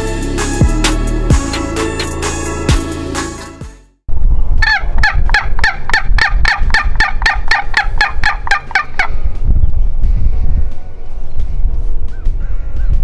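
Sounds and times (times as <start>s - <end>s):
turkey yelps on a box call: 4.6s - 9.1s.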